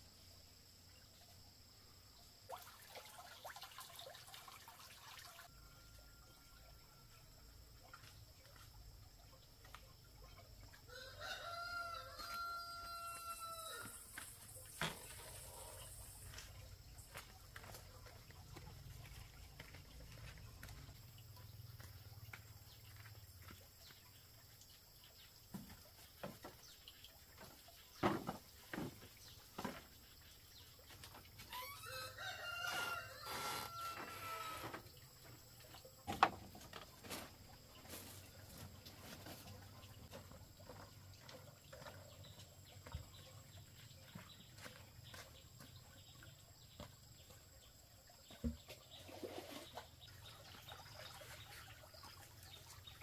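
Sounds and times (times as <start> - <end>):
rooster crowing: 10.9 - 14.1, 31.5 - 34.6.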